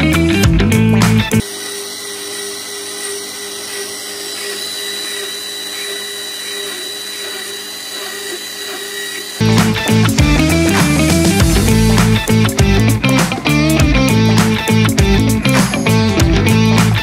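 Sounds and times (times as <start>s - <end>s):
pipe beveling machine running: 1.4s - 16.1s.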